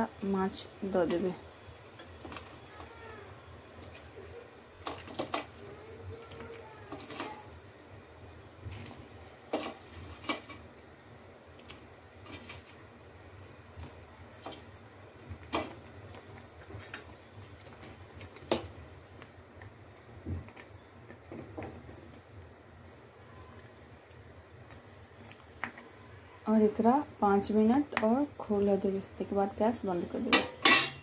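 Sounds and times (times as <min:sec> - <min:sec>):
low steady hiss: 0:00.0 - 0:31.0.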